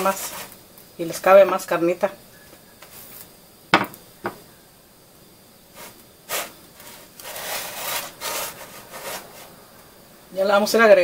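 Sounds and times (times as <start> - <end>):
bread scraping on griddle pan: 0.0 - 0.6, 5.7 - 9.8.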